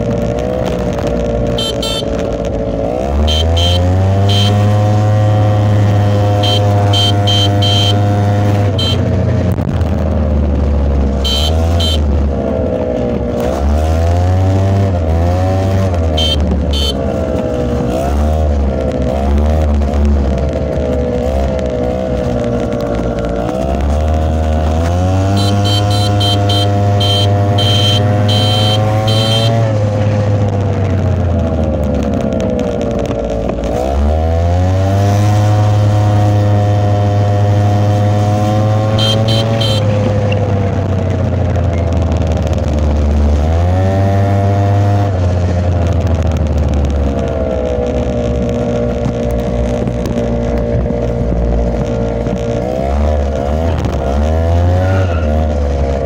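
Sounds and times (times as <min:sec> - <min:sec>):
small motorbike engine accelerating: 0:03.2 - 0:09.0, 0:23.4 - 0:41.8
high pulsing beep: 0:06.2 - 0:08.2, 0:25.3 - 0:29.6, 0:39.0 - 0:39.9.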